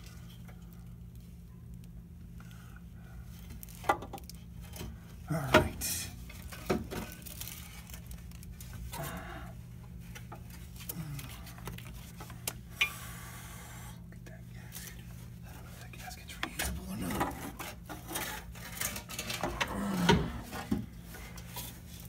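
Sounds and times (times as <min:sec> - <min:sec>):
steady low hum: 0:00.0 - 0:22.0
metal clanks and scrapes: 0:16.5 - 0:21.8.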